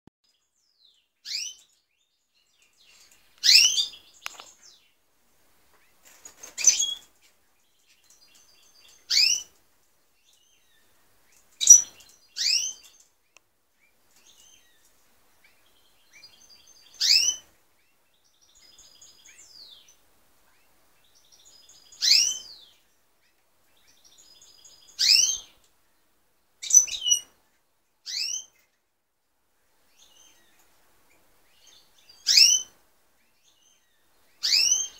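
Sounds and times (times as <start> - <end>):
soft bird twittering: 0.3 - 5.0, 6.6 - 9.5, 10.2 - 13.0, 13.8 - 22.9, 23.7 - 25.6, 26.6 - 27.3, 28.0 - 28.6, 29.9 - 34.9
bird whistled upward notes: 22.0 - 22.5, 34.4 - 34.9.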